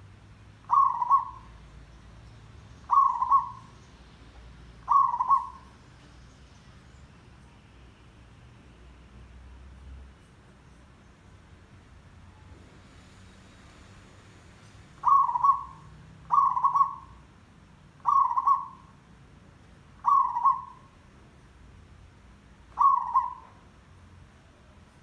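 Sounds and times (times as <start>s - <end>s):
dove cooing: 0.7s - 1.5s, 2.9s - 3.7s, 4.8s - 5.7s, 15.0s - 17.2s, 18.0s - 18.9s, 20.0s - 20.9s, 22.7s - 23.6s.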